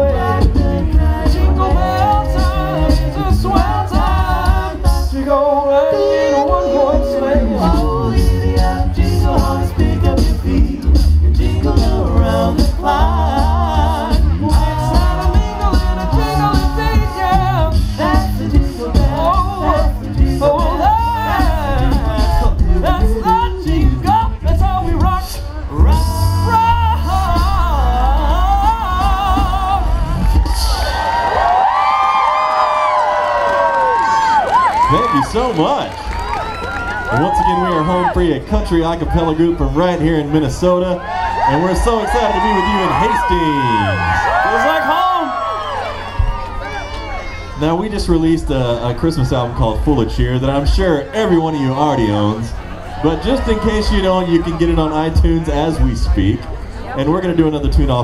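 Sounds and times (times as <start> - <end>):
low vocal beat: 0.0 - 30.9
a cappella group singing in harmony: 0.0 - 31.0
deep bass voice: 0.0 - 31.0, 37.1 - 45.5, 47.5 - 58.0.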